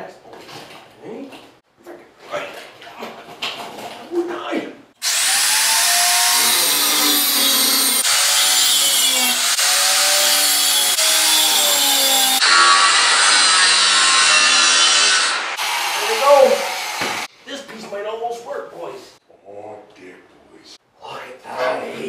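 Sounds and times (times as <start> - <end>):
angle grinder cutting steel: 5.0 - 17.3.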